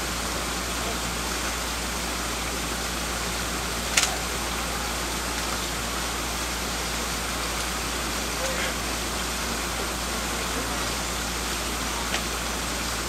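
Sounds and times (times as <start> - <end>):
sharp click: 3.9 - 4.2.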